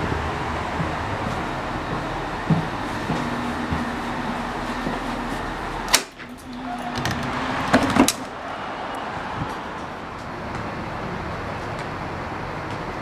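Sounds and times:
outdoor background noise: 0.0 - 13.0
steady hum inside train car: 0.0 - 13.0
train doors opening clunk: 5.8 - 8.4.

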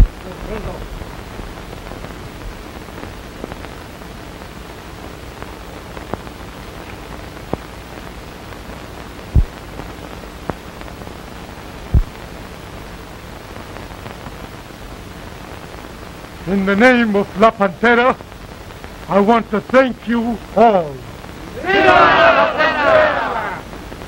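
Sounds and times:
film soundtrack hiss: 0.0 - 24.0
low thumps: 11.9 - 12.2.

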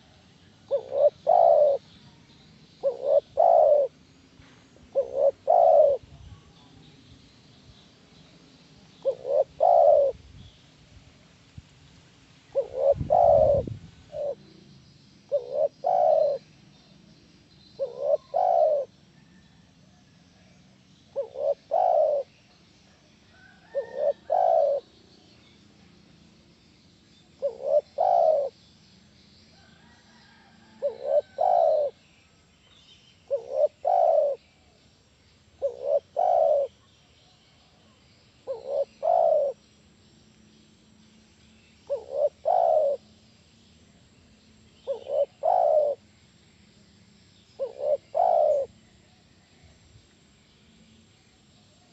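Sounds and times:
dove cooing: 0.0 - 1.9, 2.8 - 4.0, 4.8 - 6.2, 8.9 - 10.2, 12.5 - 14.6, 15.3 - 16.5, 17.8 - 19.4, 21.1 - 22.4, 23.4 - 25.0, 27.4 - 28.6, 29.7 - 32.0, 33.3 - 34.5, 35.6 - 36.9, 38.4 - 39.6, 41.9 - 43.1, 44.8 - 46.0, 47.6 - 48.9.

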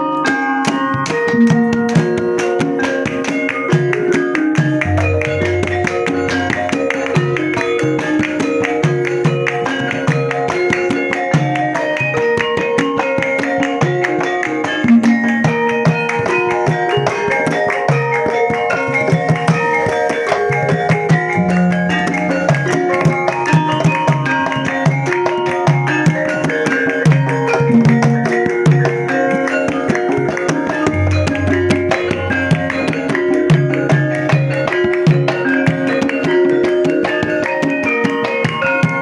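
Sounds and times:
hand drums beating: 0.0 - 39.0
held melodic notes: 0.0 - 39.0
plucked strings: 0.0 - 39.0
moving bass line: 4.8 - 7.3, 30.9 - 33.1.

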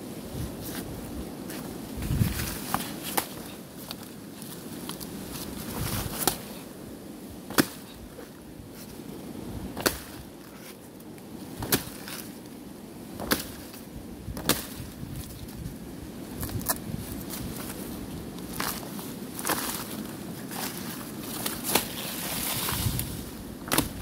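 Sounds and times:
blade chopping into plant trunk: 7.5 - 8.0, 9.8 - 10.3, 11.6 - 12.2, 13.2 - 13.8, 14.4 - 14.9, 21.4 - 24.0.

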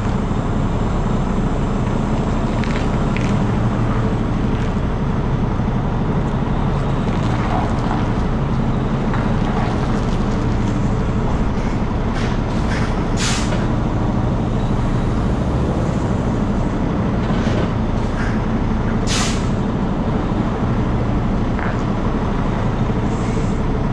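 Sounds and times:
diesel truck engine at low revs: 0.0 - 23.9
air brake hisses: 12.2 - 13.6, 19.0 - 19.6, 23.1 - 23.6.

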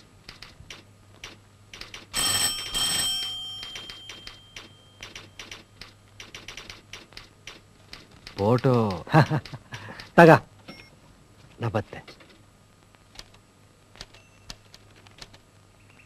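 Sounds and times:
typewriter key clicks: 0.3 - 2.1, 3.6 - 10.1
telephone bell ringing: 2.1 - 5.4.

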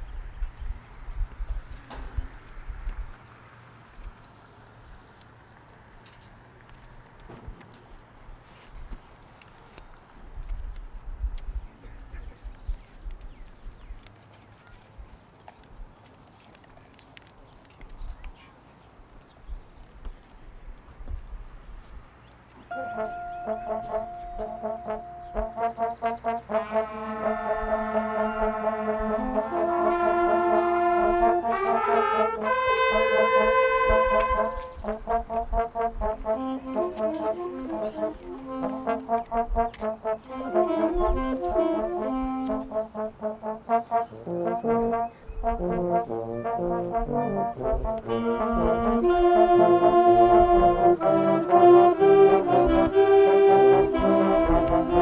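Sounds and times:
concert band playing: 22.7 - 55.0.

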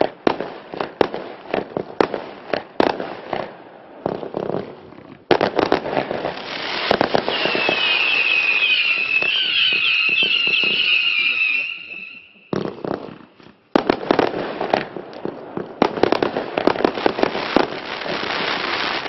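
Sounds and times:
firework shots and bursts: 5.3 - 19.0
wavering firework whistles: 6.4 - 12.9.

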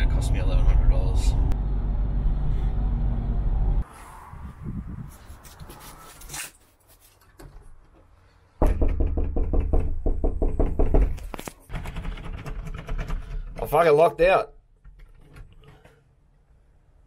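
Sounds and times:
knocking on a door: 8.6 - 11.2.

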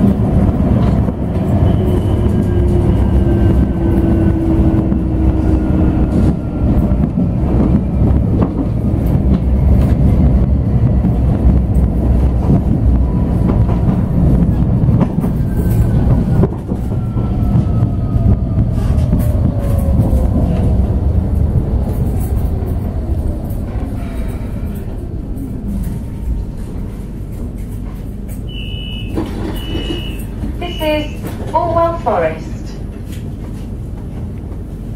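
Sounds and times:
tram rumbling on rails: 0.0 - 34.9.

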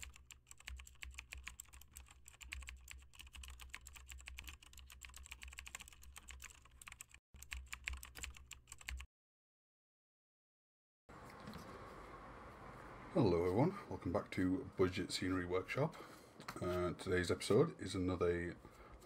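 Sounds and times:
typing on computer keyboard: 0.0 - 9.1.

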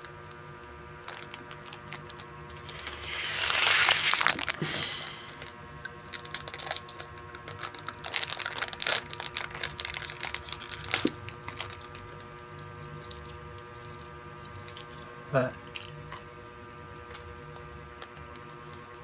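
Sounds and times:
plastic wrapper crinkling: 1.0 - 5.5, 6.1 - 15.9
chewing: 9.8 - 16.3.

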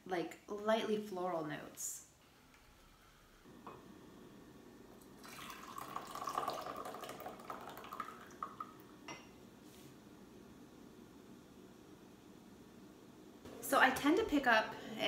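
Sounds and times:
tea trickling into glass pitcher: 5.0 - 9.3.

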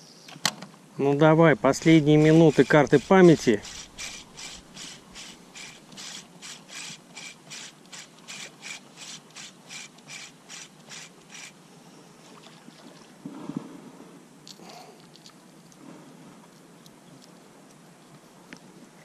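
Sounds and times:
fishing reel whirring: 1.7 - 11.6.

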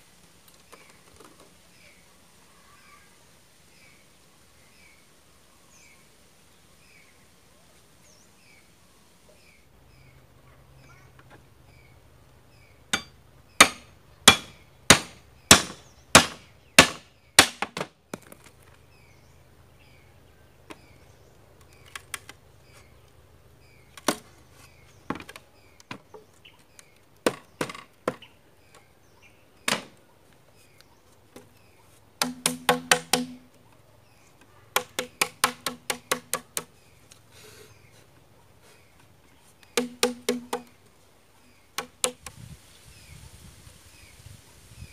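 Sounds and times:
knife chopping bamboo: 13.0 - 17.8, 32.2 - 33.5, 34.8 - 36.7, 39.8 - 40.7, 41.8 - 42.3
hollow woody knocks: 32.2 - 33.4, 34.8 - 36.7, 39.8 - 40.7.

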